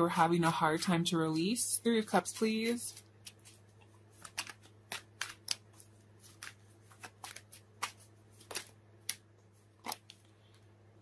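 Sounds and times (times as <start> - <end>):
cards being shuffled: 2.9 - 10.3.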